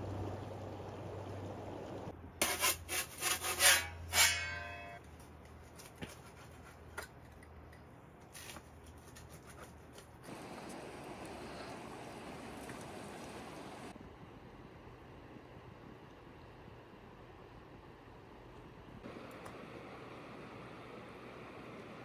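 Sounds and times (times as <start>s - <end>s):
rubbing scraping strokes: 2.4s - 4.9s.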